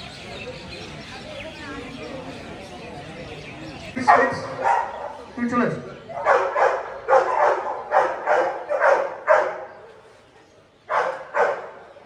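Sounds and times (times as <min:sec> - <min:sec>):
dog barking: 0:04.1 - 0:05.2, 0:06.2 - 0:09.8, 0:10.9 - 0:11.9.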